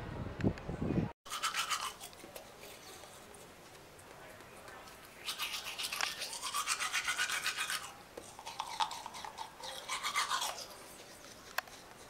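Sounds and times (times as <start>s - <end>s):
toothbrush scrubbing teeth: 1.3s - 3.4s, 5.2s - 12.0s.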